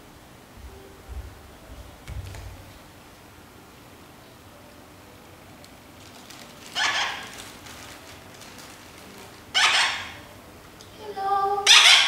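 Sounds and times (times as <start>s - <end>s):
parrots squawking: 6.6s - 7.9s, 9.5s - 10.3s, 11.6s - 12.0s
parrot pitched call: 6.7s - 7.5s, 9.5s - 10.3s, 11.6s - 12.0s.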